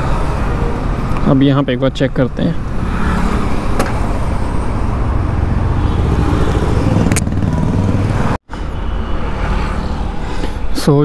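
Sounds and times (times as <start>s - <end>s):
road and traffic noise: 0.0s - 11.0s
motorcycle engine running: 6.2s - 8.4s.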